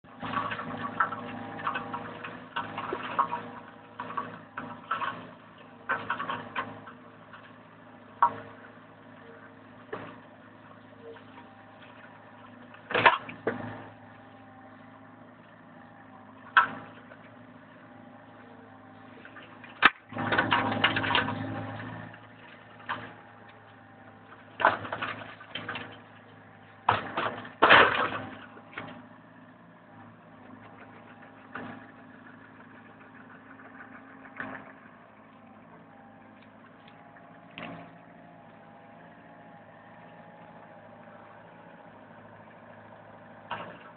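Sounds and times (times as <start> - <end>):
diesel engine running: 0.0 - 43.9
mulcher chopping vegetation: 0.1 - 8.8, 9.6 - 14.6, 16.4 - 29.0, 35.5 - 43.9.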